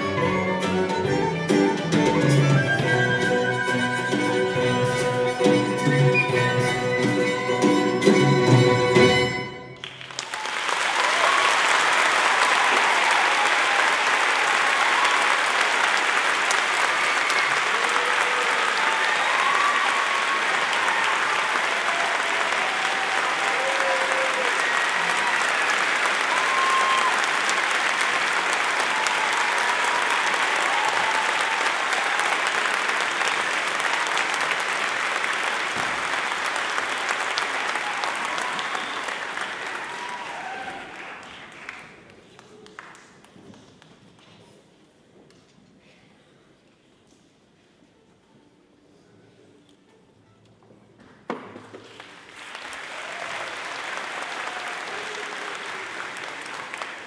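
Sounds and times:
audience applauding: 9.6 - 44.3, 51.6 - 57.0.

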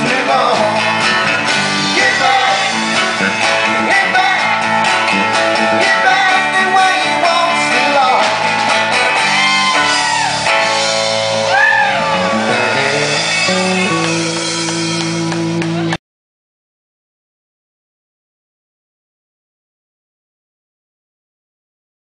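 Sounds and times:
person singing: 0.0 - 10.0
acoustic guitar: 0.0 - 16.0
electric bass: 0.0 - 16.0.

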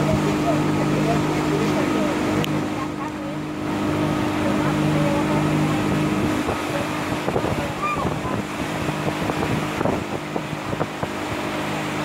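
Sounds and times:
motorboat engine running: 0.0 - 12.0
water splashing against hull: 0.0 - 12.0
wind on microphone: 0.0 - 12.0.

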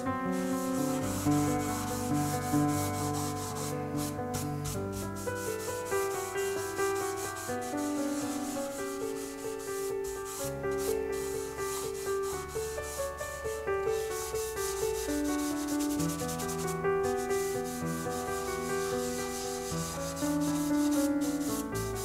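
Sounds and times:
background music: 0.0 - 9.4
cloth rubbing on wood: 0.3 - 13.3, 13.9 - 22.0.

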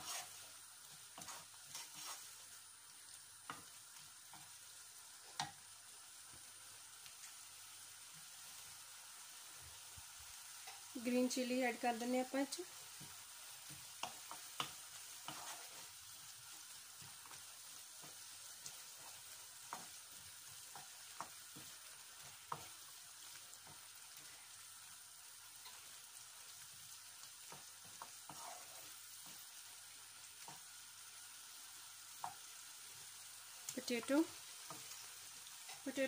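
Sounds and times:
wooden spoon stirring: 0.0 - 2.4, 12.9 - 15.9, 27.5 - 29.4
food sizzling in a pan: 0.0 - 36.0
spoon tapping pan: 3.4 - 4.6, 5.3 - 5.6, 12.8 - 15.6, 17.0 - 20.0, 20.6 - 22.8, 30.4 - 30.7, 32.2 - 32.5.

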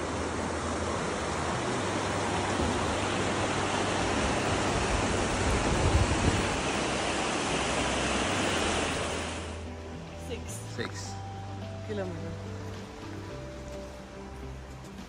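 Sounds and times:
creek rushing over stones: 0.0 - 9.7.

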